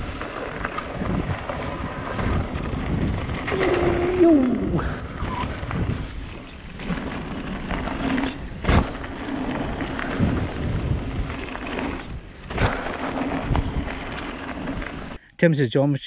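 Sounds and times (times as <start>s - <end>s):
tyres rumbling on gravel: 0.0s - 15.2s
wind buffeting microphone: 0.0s - 15.2s
bike knocking over bumps: 5.6s - 15.0s.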